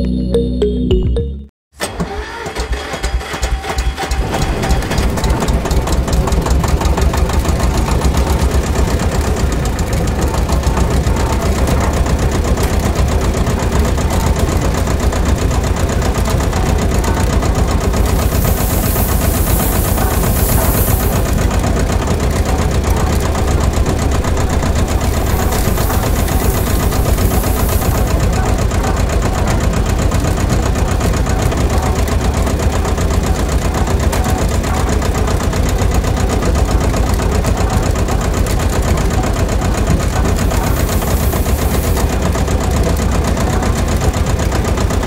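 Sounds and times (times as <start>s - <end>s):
model diesel engine knocking: 2.7s - 45.0s
sand pouring through screen: 17.9s - 21.4s, 24.8s - 28.2s, 40.4s - 42.2s.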